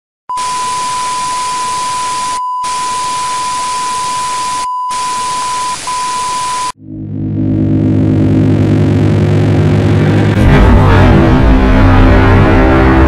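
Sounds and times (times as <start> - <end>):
steady high-pitched beep: 0.3 - 6.8.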